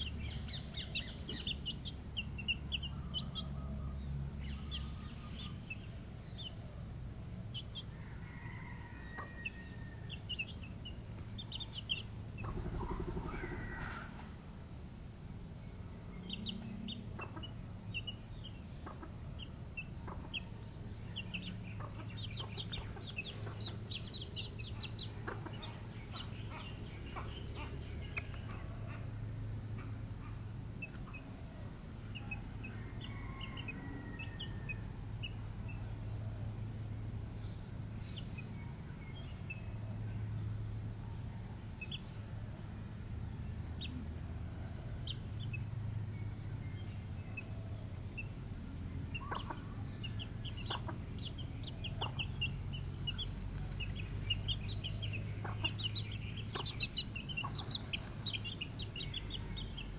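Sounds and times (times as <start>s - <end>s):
chicks peeping: 0.0s - 6.6s, 7.4s - 14.3s, 16.2s - 29.0s, 30.8s - 31.2s, 49.0s - 59.9s
high-pitched whine: 9.3s - 59.9s
chickens clucking: 10.3s - 14.3s, 16.3s - 18.2s, 18.8s - 29.0s, 49.1s - 59.9s.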